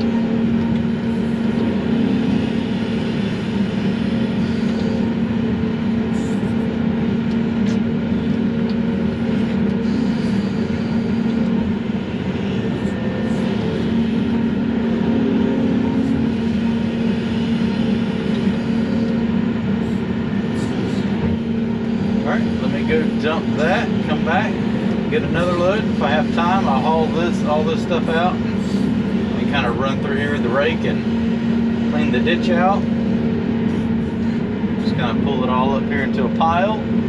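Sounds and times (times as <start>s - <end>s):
excavator engine and hydraulics: 0.0s - 37.0s.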